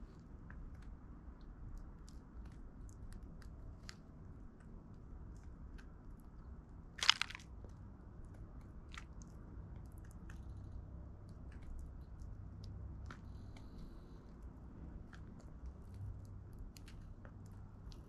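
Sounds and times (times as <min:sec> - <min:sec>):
low background rumble: 0:00.0 - 0:18.0
birds cracking seeds: 0:07.0 - 0:07.5.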